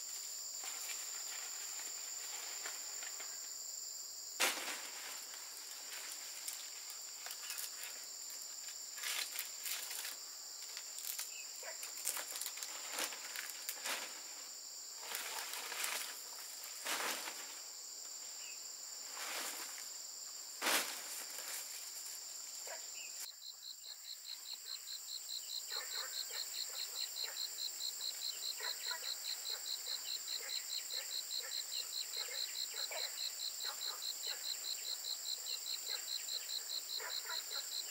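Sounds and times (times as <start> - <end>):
palm leaves and bamboo rustling: 0.0 - 23.3
insects droning: 0.0 - 37.9.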